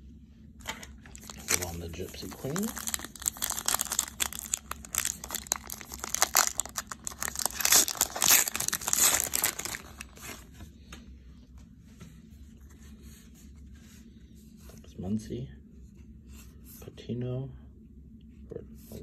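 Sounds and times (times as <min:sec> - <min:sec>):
wrapper tearing and crinkling: 0:01.0 - 0:10.4.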